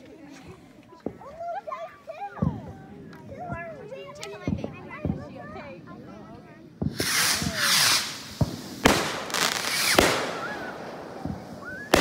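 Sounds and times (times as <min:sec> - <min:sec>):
fireworks rush: 0:02.2 - 0:12.0
fireworks banging: 0:02.3 - 0:05.7, 0:06.8 - 0:12.0.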